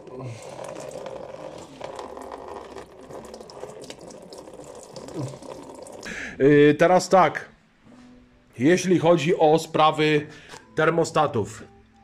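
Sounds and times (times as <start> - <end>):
coolant splashing into a container: 0.0 - 6.2.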